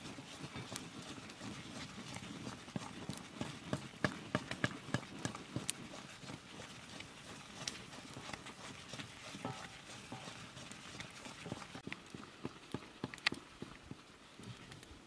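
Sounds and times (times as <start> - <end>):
wooden stick scraping iron wok: 3.7 - 11.8.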